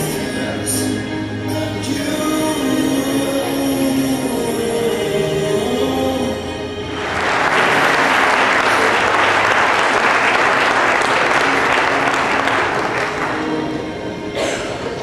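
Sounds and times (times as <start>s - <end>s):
faint music: 0.0s - 15.0s
crowd applauding: 6.9s - 13.8s.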